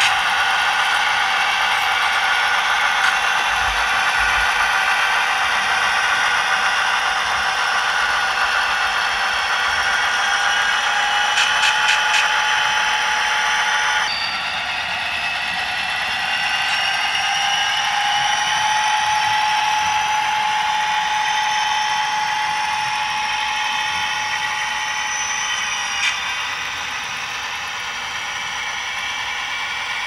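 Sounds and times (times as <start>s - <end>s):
diesel engine sound from speaker: 0.0s - 13.5s
motor and gear whine: 0.0s - 30.0s.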